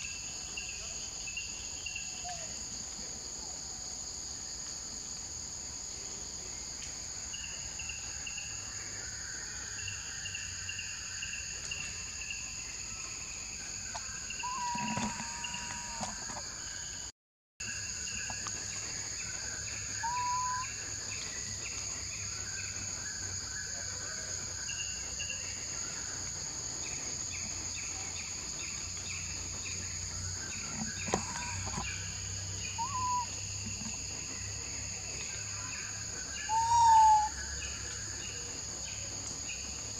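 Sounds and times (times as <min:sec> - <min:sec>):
insect chirps: 0:00.0 - 0:39.9
whistled bird calls: 0:14.3 - 0:16.4, 0:19.9 - 0:20.8, 0:30.5 - 0:34.0, 0:35.6 - 0:38.4.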